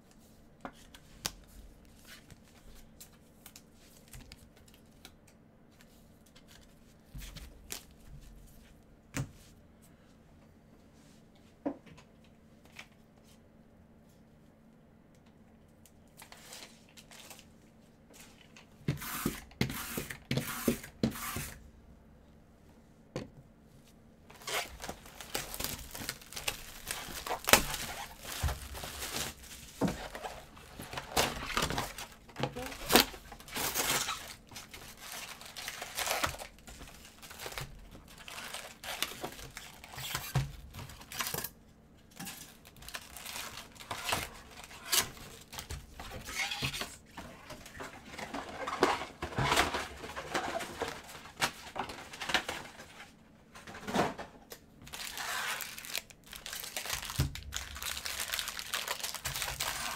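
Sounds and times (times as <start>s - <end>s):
plastic wrap tearing and crinkling: 24.3s - 41.5s, 42.2s - 46.9s, 54.8s - 59.9s.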